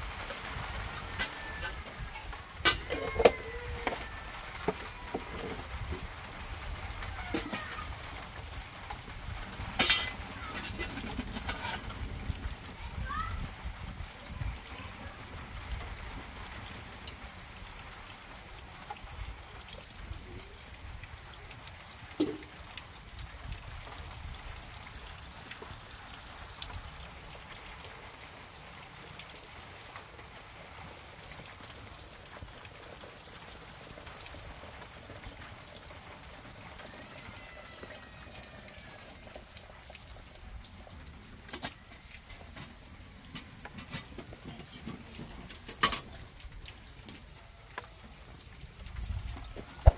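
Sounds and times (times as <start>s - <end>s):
wood fire crackling: 0.0s - 49.9s.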